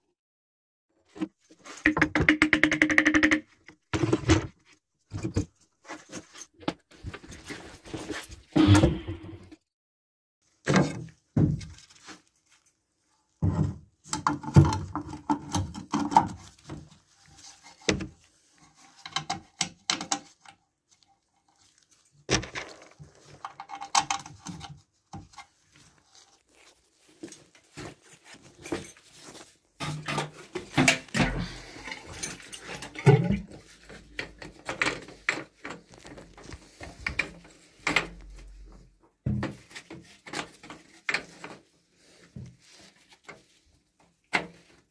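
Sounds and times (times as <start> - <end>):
pump parts clicking and scraping: 13.5 - 44.9.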